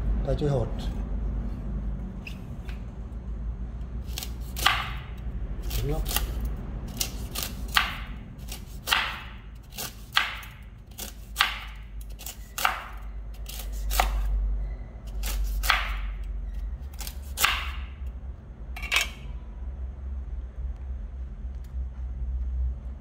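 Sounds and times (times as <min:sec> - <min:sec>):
knife chopping fruit: 0:04.0 - 0:14.4, 0:15.1 - 0:18.1.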